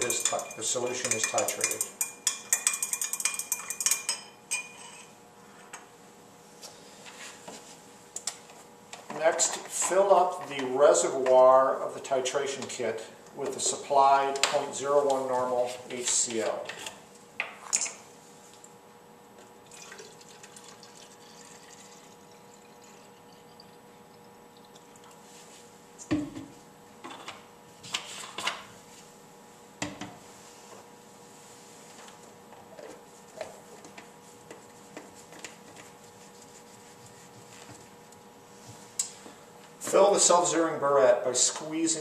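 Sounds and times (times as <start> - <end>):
stirring rod clinking against glass: 0.0 - 5.1.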